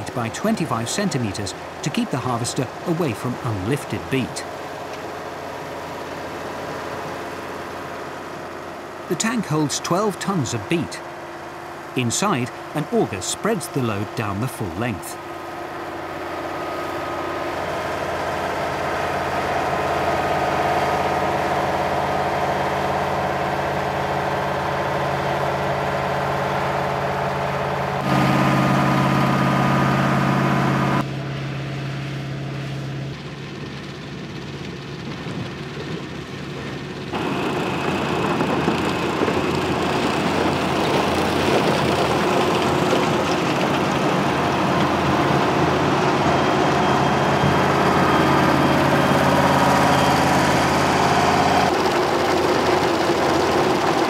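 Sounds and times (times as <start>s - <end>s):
harvester engine running: 0.0s - 54.0s
harvester lifting gear noise: 35.1s - 54.0s.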